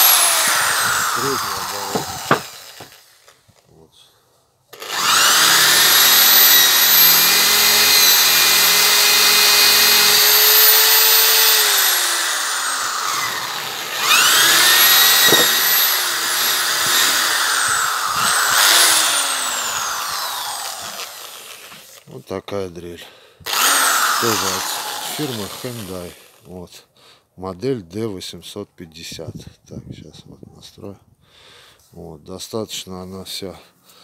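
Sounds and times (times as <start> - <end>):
hammer drill boring into wood: 0.0 - 3.4, 4.7 - 22.0, 23.4 - 26.5.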